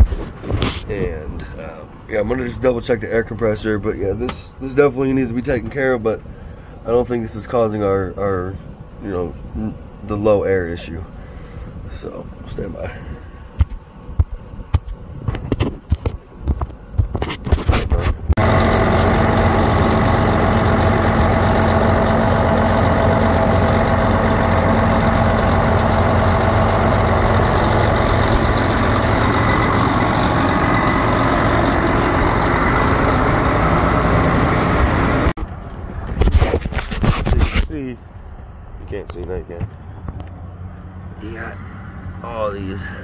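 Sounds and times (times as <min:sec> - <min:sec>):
truck diesel engine idling: 0:18.4 - 0:35.3.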